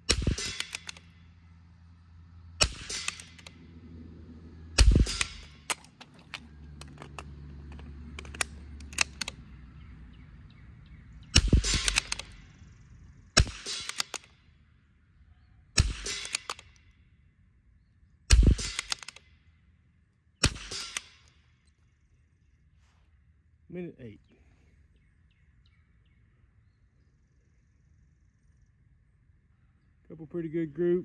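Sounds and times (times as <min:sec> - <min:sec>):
rifle shots: 0:00.0 - 0:01.2, 0:02.6 - 0:03.7, 0:04.8 - 0:06.4, 0:11.3 - 0:12.5, 0:13.4 - 0:14.5, 0:15.8 - 0:16.8, 0:18.3 - 0:19.2, 0:20.4 - 0:21.4
rifle bolt clicks: 0:00.1 - 0:01.2, 0:02.7 - 0:03.6, 0:04.8 - 0:09.4, 0:11.4 - 0:12.5, 0:13.4 - 0:14.4, 0:15.8 - 0:16.8, 0:18.3 - 0:19.3.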